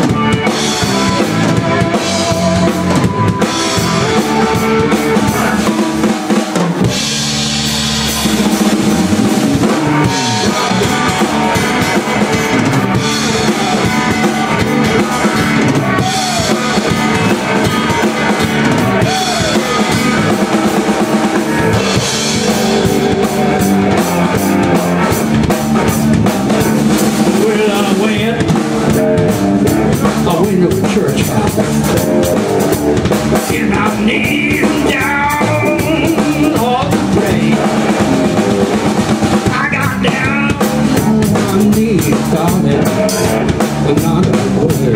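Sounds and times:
gliding electric guitar notes: 0:00.0 - 0:06.1, 0:06.9 - 0:27.4
live blues-rock band playing: 0:00.0 - 0:44.9.

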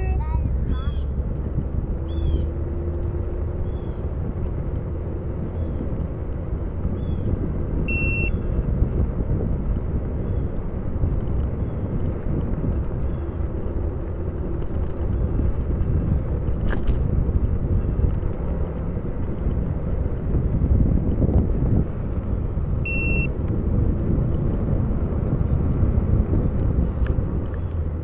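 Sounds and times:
wind rumbling on microphone: 0:00.0 - 0:28.0
short high electronic beep: 0:07.9 - 0:08.3, 0:22.9 - 0:23.3.

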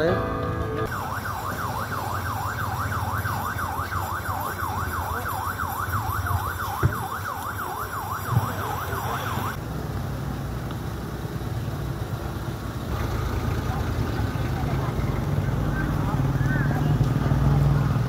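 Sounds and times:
low engine rumble: 0:00.0 - 0:18.0
siren yelping: 0:00.8 - 0:09.6.

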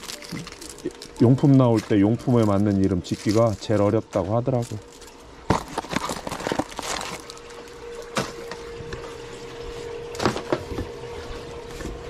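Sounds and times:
plastic packaging clicks and rustles: 0:00.0 - 0:08.7.

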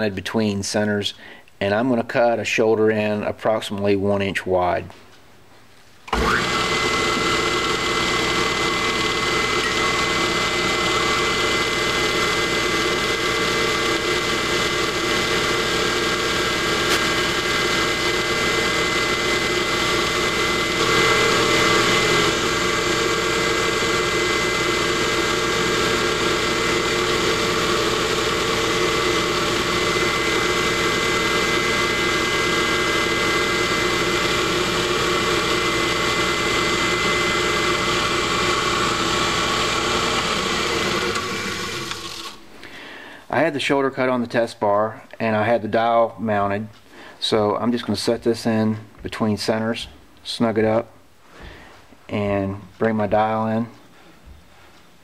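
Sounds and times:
metal lathe humming and whining: 0:06.1 - 0:42.4.

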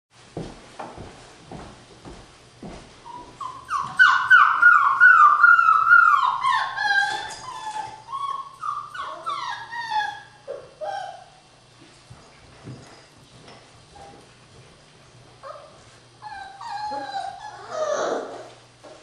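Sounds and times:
puppies whining: 0:03.1 - 0:11.5, 0:15.4 - 0:18.7.

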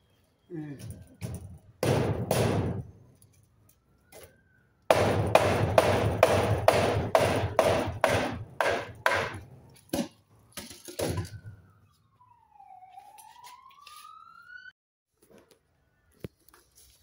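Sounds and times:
hammer blows on wooden post: 0:04.9 - 0:09.4.

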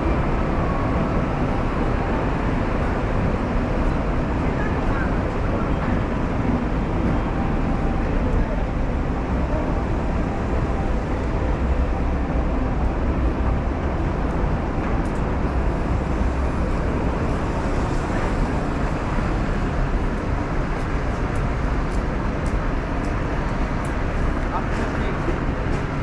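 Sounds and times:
city traffic noise: 0:00.0 - 0:26.0.

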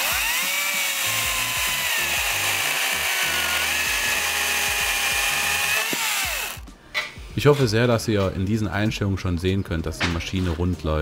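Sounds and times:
electric chainsaw cutting log: 0:00.0 - 0:06.6.

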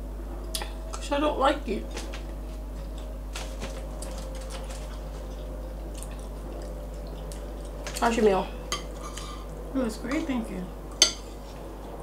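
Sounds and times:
steady low hum: 0:00.0 - 0:12.0
light chewing: 0:02.2 - 0:08.2.

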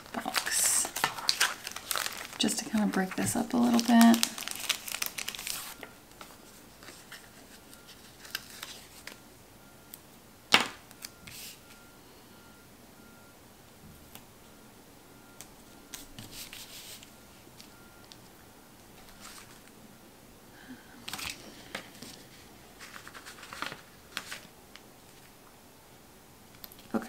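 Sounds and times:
paper rustling: 0:00.1 - 0:09.2, 0:15.9 - 0:17.7, 0:19.0 - 0:19.7, 0:21.0 - 0:25.3.

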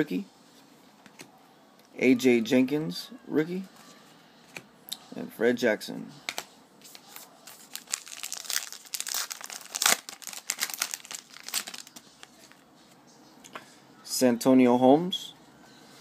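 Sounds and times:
wrapper being torn and crinkled: 0:07.0 - 0:12.5.

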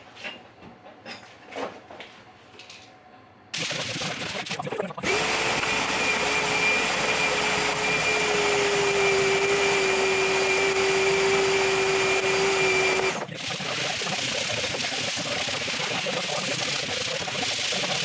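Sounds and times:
electric motor whining: 0:05.0 - 0:13.6.

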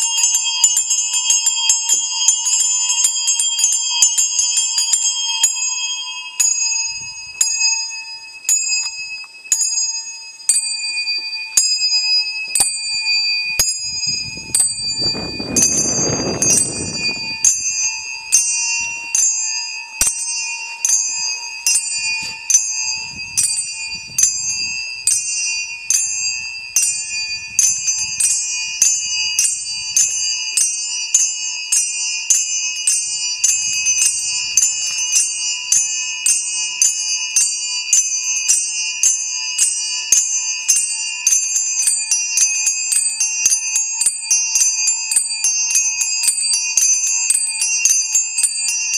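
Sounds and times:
handbells ringing: 0:00.0 - 0:48.9
bowed musical saw tone: 0:05.8 - 0:29.4.

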